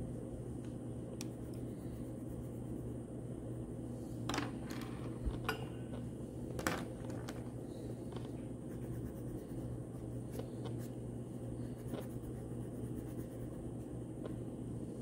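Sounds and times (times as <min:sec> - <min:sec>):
crayon colouring on paper: 0:11.6 - 0:13.7.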